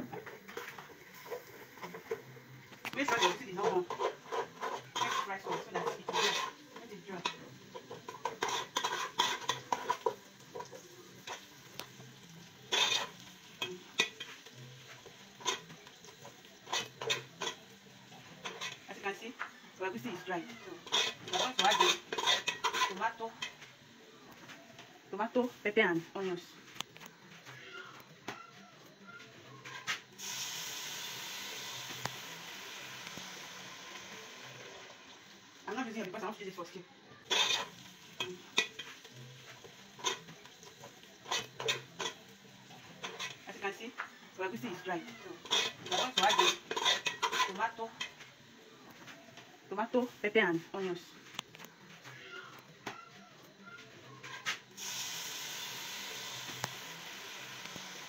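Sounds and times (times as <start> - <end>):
food frying: 0.0 - 28.2, 29.6 - 52.8, 54.0 - 58.0
metal spoon scraping a pot: 0.1 - 11.6, 12.6 - 19.0, 20.1 - 23.7, 37.2 - 43.7, 44.6 - 48.2.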